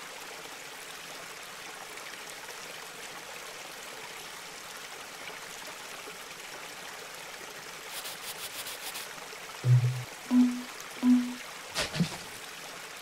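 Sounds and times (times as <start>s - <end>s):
fountain pouring into pond: 0.0s - 9.6s, 12.4s - 13.0s.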